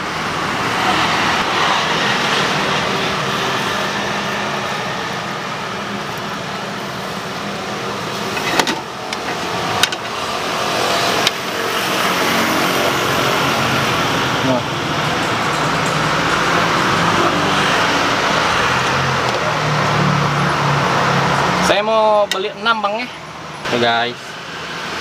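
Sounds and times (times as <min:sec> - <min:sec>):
cars passing: 0:00.0 - 0:25.0.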